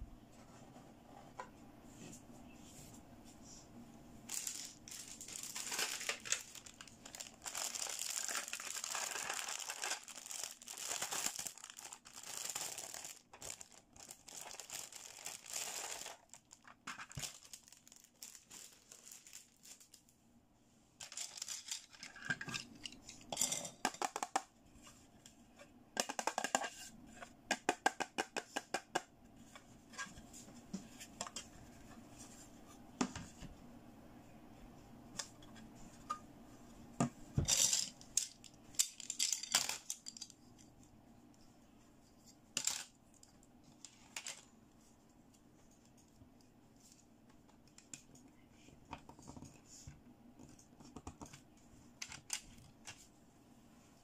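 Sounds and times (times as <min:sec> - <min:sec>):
plastic wrapping crinkling: 0:04.3 - 0:20.1, 0:21.0 - 0:22.2.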